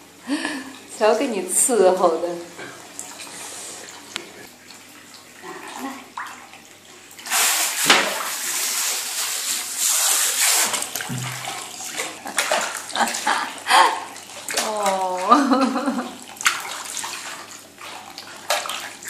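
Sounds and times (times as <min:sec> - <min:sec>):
water spraying from shower head: 0:07.2 - 0:11.4.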